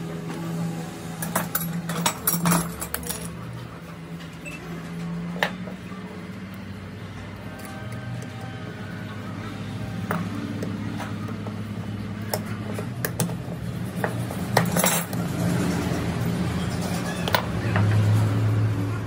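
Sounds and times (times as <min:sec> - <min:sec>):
small metal parts clinking: 0:01.2 - 0:03.4, 0:14.5 - 0:15.2.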